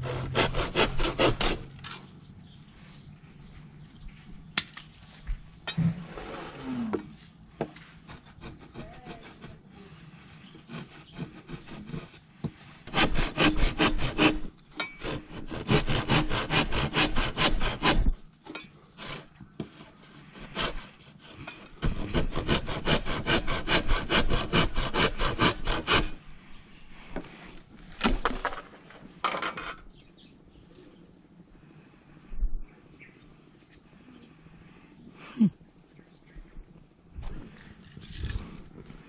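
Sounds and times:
hand saw cutting bamboo: 0.0s - 2.0s, 8.1s - 9.8s, 10.4s - 18.2s, 19.0s - 26.2s.

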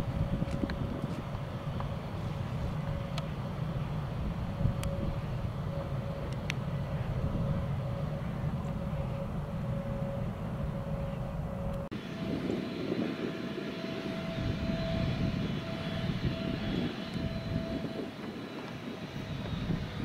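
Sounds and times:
jet engines whining: 0.0s - 20.0s.

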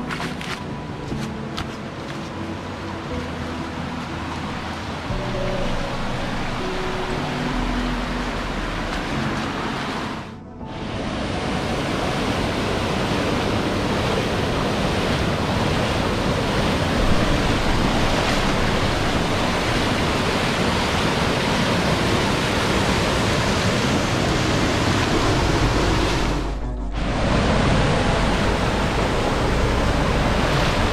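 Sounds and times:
water rushing over rocks: 0.0s - 30.9s.

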